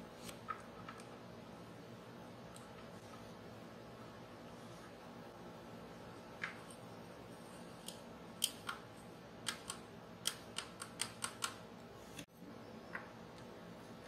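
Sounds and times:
faint steady hum: 0.0s - 14.0s
fingernails clicking on model: 9.4s - 11.6s.

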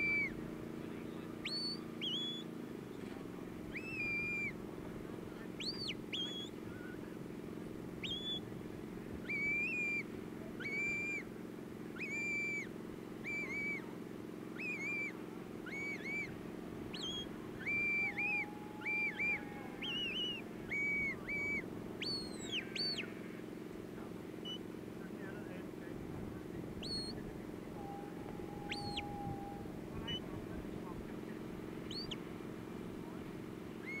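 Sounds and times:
sharp whistled commands: 0.0s - 0.4s, 1.4s - 2.5s, 3.7s - 4.6s, 5.6s - 6.6s, 8.0s - 8.4s, 9.3s - 11.3s, 12.0s - 13.9s, 14.6s - 23.1s, 24.4s - 24.6s, 26.8s - 27.2s, 27.8s - 30.4s, 31.9s - 32.2s, 33.8s - 34.0s.

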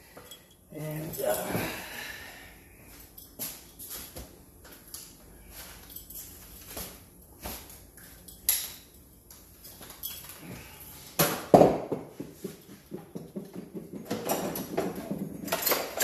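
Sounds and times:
metal tools clinking: 0.0s - 1.8s, 2.9s - 6.8s, 8.0s - 10.8s, 13.9s - 16.0s.

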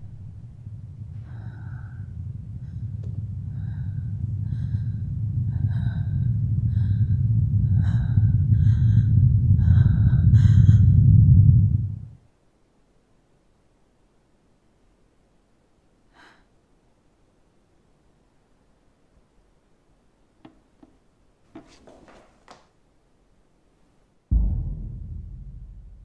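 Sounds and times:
low rumbling drone: 0.0s - 12.2s, 24.3s - 26.0s.

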